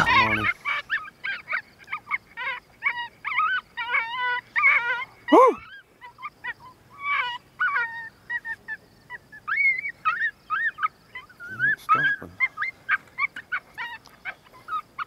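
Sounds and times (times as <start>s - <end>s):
electronic coyote pup yips: 0.0s - 15.0s.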